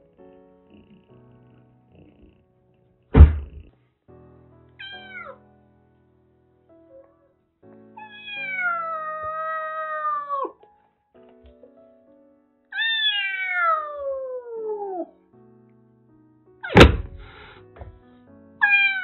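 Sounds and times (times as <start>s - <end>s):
soft background music: 0.0s - 19.0s
kitten meowing: 4.8s - 5.4s, 8.0s - 10.6s, 12.7s - 15.1s, 18.6s - 19.0s.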